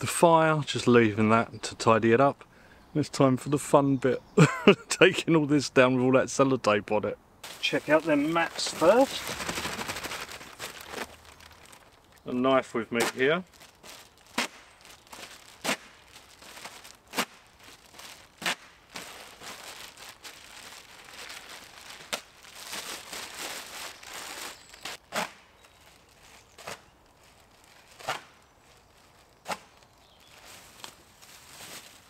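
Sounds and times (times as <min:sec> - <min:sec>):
bubble wrap crinkling and tearing: 0:07.4 - 0:12.3, 0:13.1 - 0:32.0.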